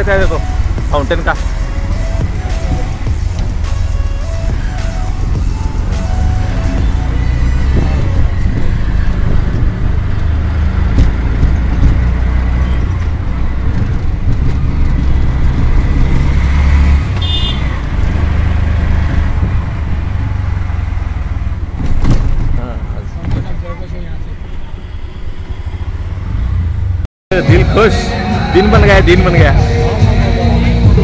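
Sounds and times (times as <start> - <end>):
road traffic rumble: 0.0 - 31.0
car horn toot: 17.1 - 17.8.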